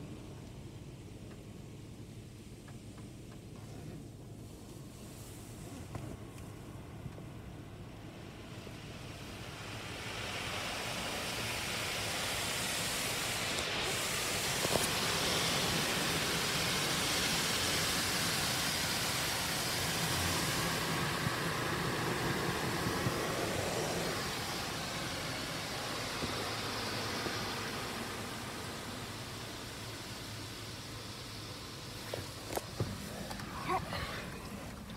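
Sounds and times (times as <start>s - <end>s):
car wash water spray hissing: 0.0s - 34.9s.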